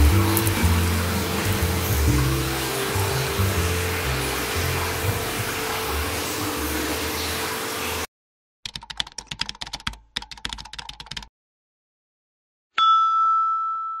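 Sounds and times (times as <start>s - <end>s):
noisy background track: 0.0s - 8.0s
bright ringing chime: 12.8s - 14.0s.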